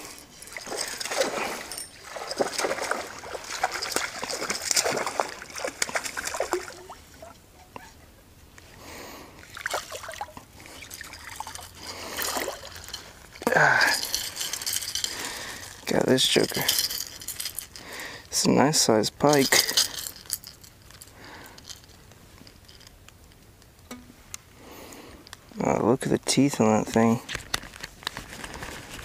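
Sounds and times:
fish splashing in water: 0.5 - 7.3, 9.4 - 12.7.

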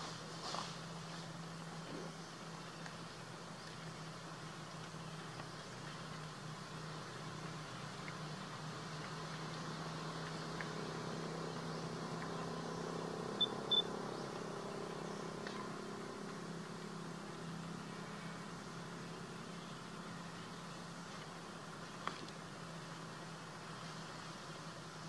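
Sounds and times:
distant engine humming: 0.0 - 25.0
short high chirps: 13.4 - 13.9.

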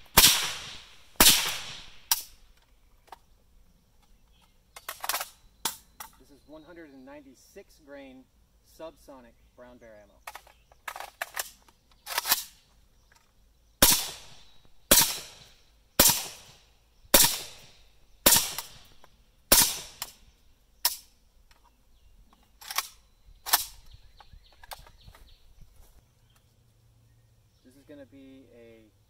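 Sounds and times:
suppressed rifle shots: 0.0 - 2.4, 13.8 - 21.1, 22.6 - 23.9.

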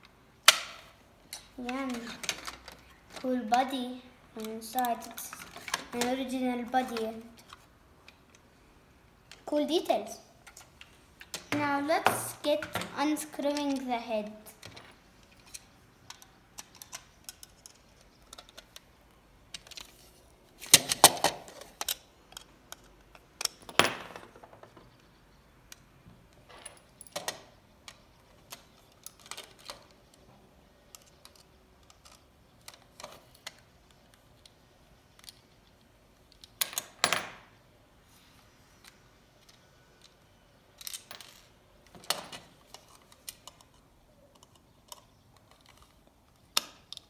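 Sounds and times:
plastic toy parts clicking and rattling: 0.4 - 3.8, 4.4 - 8.4, 10.4 - 23.7, 25.7 - 37.0, 38.8 - 47.0
plastic parts clattering: 1.4 - 3.6, 26.5 - 30.3.

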